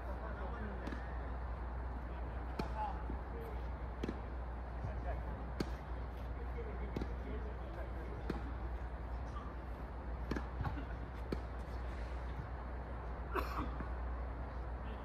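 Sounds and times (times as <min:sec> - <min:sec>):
steady low hum: 0:00.0 - 0:15.0
tennis balls struck and bouncing: 0:00.4 - 0:01.3, 0:02.2 - 0:12.6.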